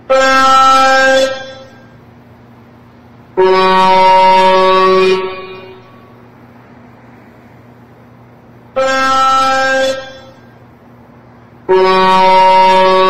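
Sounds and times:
truck horn blasts: 0.0s - 2.0s, 3.3s - 6.4s, 8.7s - 10.8s, 11.6s - 13.0s
faint highway traffic: 0.0s - 13.0s.

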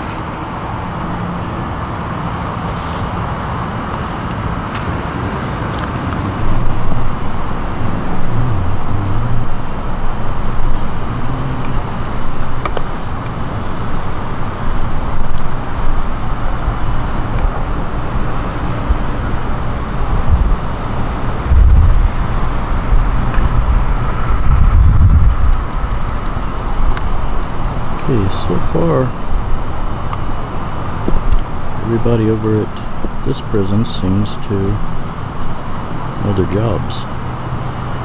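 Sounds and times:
low buffets: 0.0s - 38.0s
low uneven rumble: 5.0s - 33.8s.

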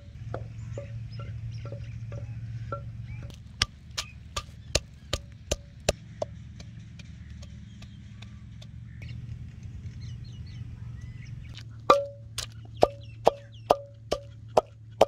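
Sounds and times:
pestle pounding in mortar: 0.0s - 8.7s, 11.9s - 15.0s
low steady hum: 0.0s - 15.0s.

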